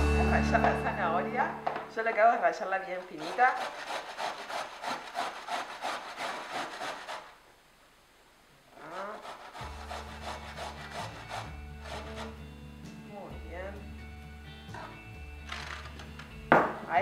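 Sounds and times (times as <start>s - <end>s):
background music: 0.0s - 3.6s, 9.2s - 17.0s
carrot scraped on metal grater: 3.1s - 7.3s, 8.8s - 12.4s.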